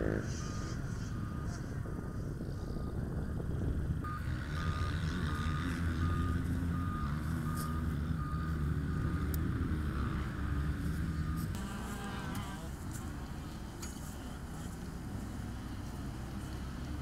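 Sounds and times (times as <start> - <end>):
reversing alarm beeping: 0.0 - 3.4, 4.0 - 9.9
engine running: 0.0 - 17.0.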